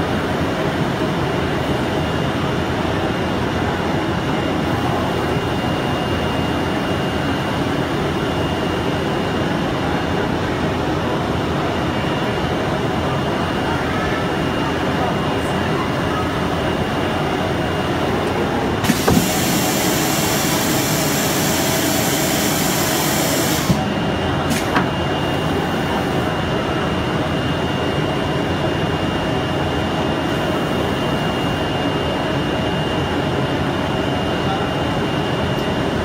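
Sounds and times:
machine whirring with high whine: 0:00.0 - 0:36.0
hiss: 0:18.9 - 0:23.8.

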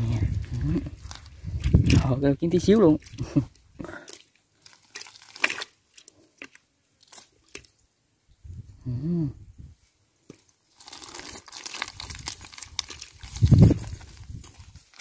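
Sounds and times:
net and fish crunching: 0:00.0 - 0:07.8, 0:10.3 - 0:15.0
person humming: 0:08.8 - 0:09.5.

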